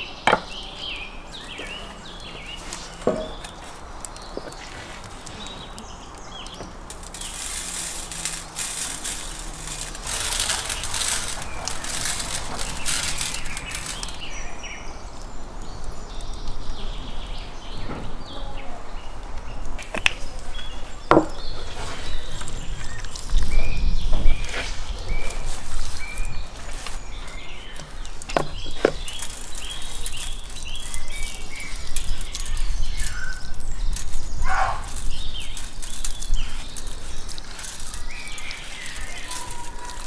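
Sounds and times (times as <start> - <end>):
salt pattering on metal tray: 1.4 - 14.4, 22.3 - 40.0.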